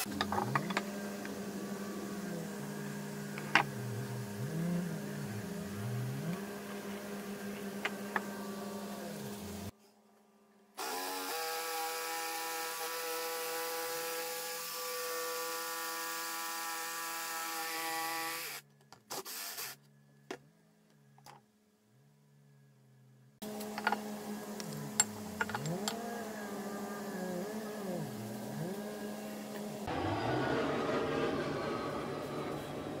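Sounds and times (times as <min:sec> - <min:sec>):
jigsaw cutting wood: 0:10.8 - 0:18.6.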